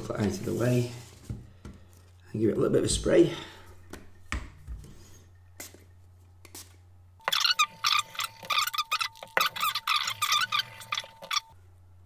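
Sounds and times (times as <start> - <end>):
toothbrush scrubbing circuit board: 7.2 - 11.6.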